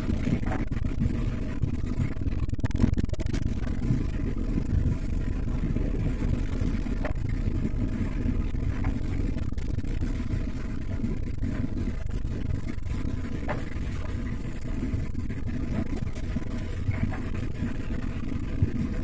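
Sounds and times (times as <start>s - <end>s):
car cabin road and engine rumble: 0.0s - 19.0s.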